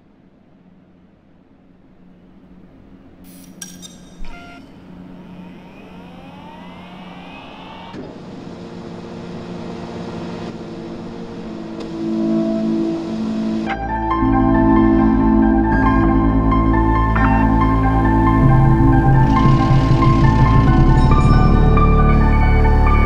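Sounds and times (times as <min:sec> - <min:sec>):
sharp clicks: 0:03.3 - 0:04.7
stepper motors whining: 0:03.3 - 0:13.5
low sustained drone: 0:04.1 - 0:23.0.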